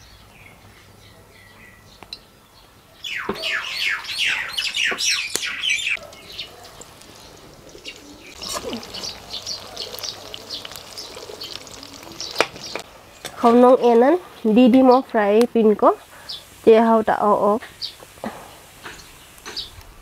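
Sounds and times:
bird chirping: 0:00.0 - 0:15.2, 0:17.6 - 0:19.8
food sizzling in hot oil: 0:06.2 - 0:13.8, 0:14.4 - 0:19.8.

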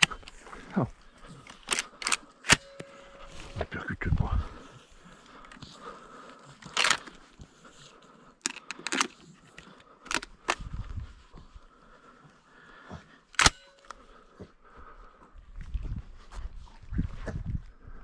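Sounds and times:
shotgun action clicking and clacking: 0:01.5 - 0:02.9, 0:06.6 - 0:07.1, 0:08.4 - 0:09.2, 0:10.0 - 0:10.6, 0:13.4 - 0:14.0.

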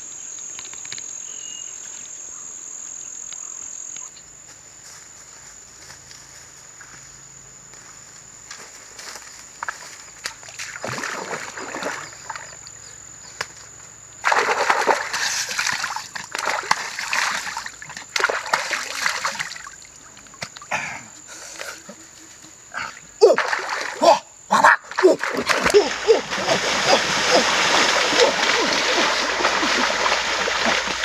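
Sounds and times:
stream water splashing: 0:09.6 - 0:12.8, 0:14.2 - 0:20.8, 0:22.8 - 0:31.0.

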